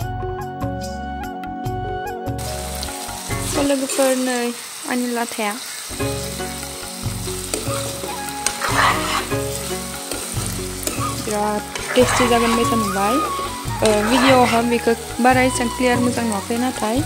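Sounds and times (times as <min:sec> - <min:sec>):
food sizzling in hot oil: 0:02.3 - 0:17.0
metal spatula stirring: 0:07.4 - 0:15.2.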